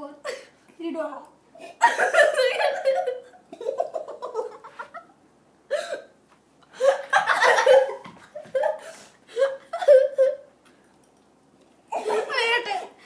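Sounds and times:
boys laughing: 1.6s - 5.2s, 6.7s - 10.5s, 11.9s - 13.0s.

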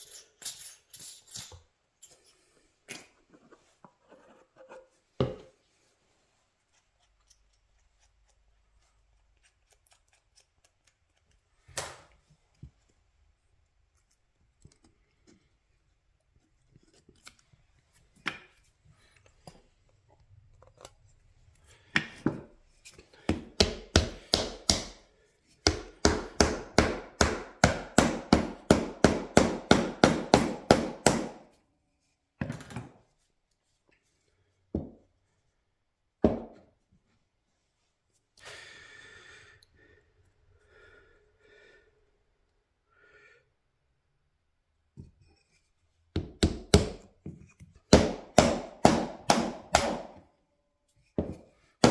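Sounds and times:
mallet knocking wood: 47.9s - 50.0s.

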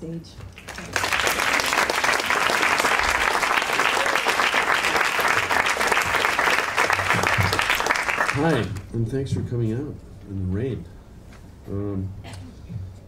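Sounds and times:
audience applauding: 0.5s - 8.9s.

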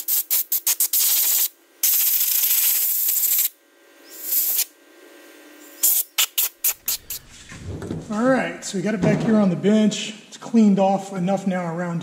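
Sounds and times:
compressed air blow gun hissing: 4.1s - 4.7s, 5.8s - 7.4s.

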